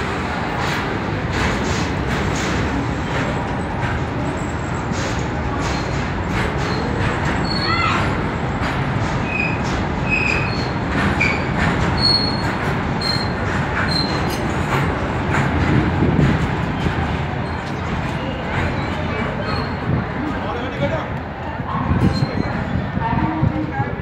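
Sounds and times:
steel wheels rumbling on rail: 0:00.0 - 0:24.0
high wheel squeal: 0:06.6 - 0:08.2, 0:09.2 - 0:14.4, 0:22.0 - 0:22.8.

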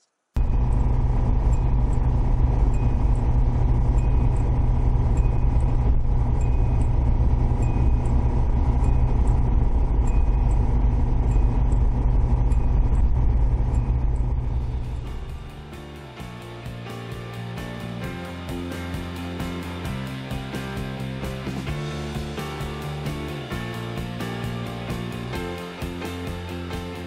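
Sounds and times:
car engine and road rumble: 0:00.4 - 0:27.0
speed warning chime: 0:00.5 - 0:15.4.

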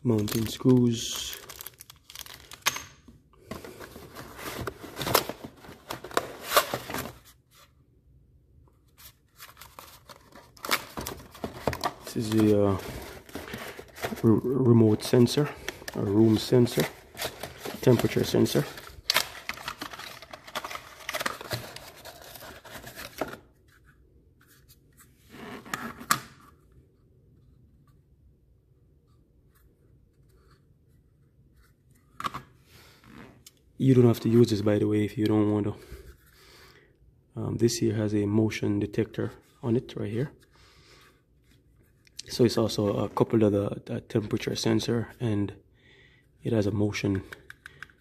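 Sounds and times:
paper packet crinkling: 0:00.1 - 0:02.6, 0:09.4 - 0:23.3.

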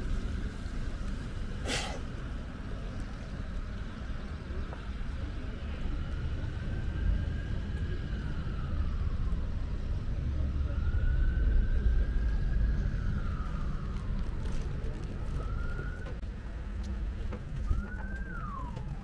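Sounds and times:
emergency vehicle siren wailing: 0:05.7 - 0:16.3, 0:17.3 - 0:19.0.

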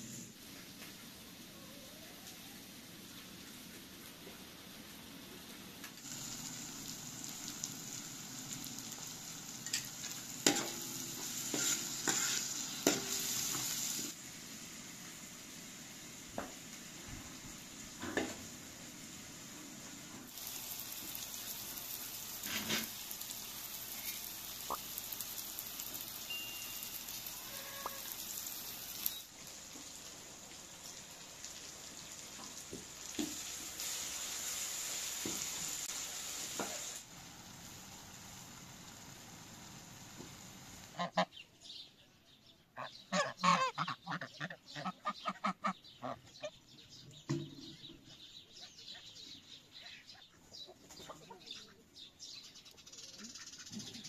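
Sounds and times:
vegetables sizzling in frying pan: 0:04.4 - 0:41.0
geese honking: 0:27.2 - 0:28.3, 0:40.9 - 0:41.3, 0:42.8 - 0:46.5.

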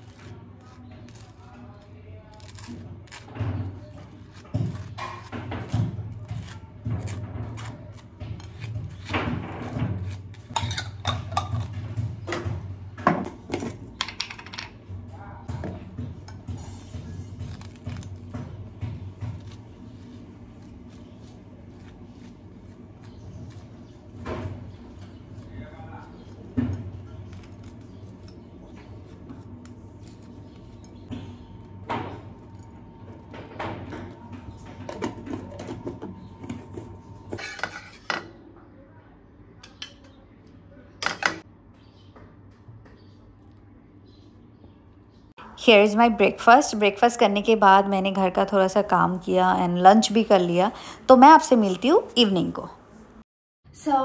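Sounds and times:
kitchenware clinking: 0:10.4 - 0:11.8, 0:13.0 - 0:14.8, 0:34.8 - 0:38.4, 0:41.0 - 0:41.4
metal utensils clinking on pans: 0:10.5 - 0:11.7.

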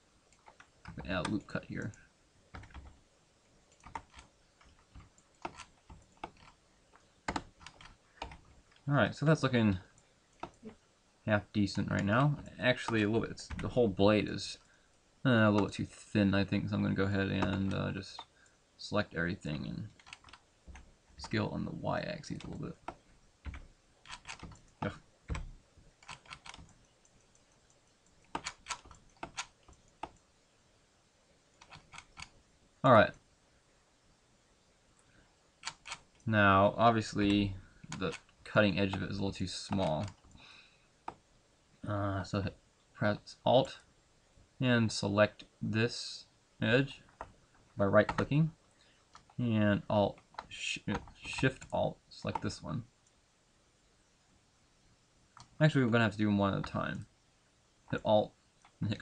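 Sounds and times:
computer keyboard keystrokes: 0:02.5 - 0:03.0, 0:03.7 - 0:06.6, 0:07.3 - 0:08.4, 0:20.0 - 0:20.8, 0:22.4 - 0:26.8, 0:28.3 - 0:30.2, 0:35.6 - 0:36.1.

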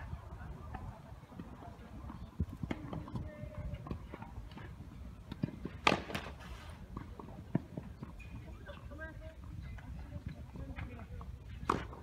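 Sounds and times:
tennis ball struck by rackets: 0:05.3 - 0:06.4.

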